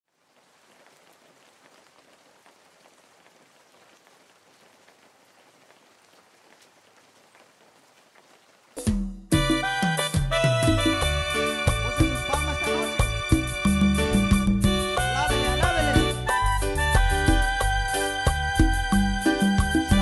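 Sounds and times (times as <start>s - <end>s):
light crackles: 0.0s - 9.1s
faint steady hiss: 0.1s - 9.0s.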